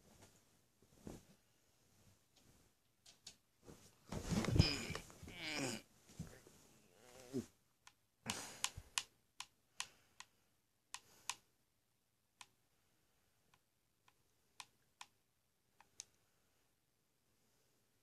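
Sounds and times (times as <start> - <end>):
sharp clicks: 7.8 - 11.4.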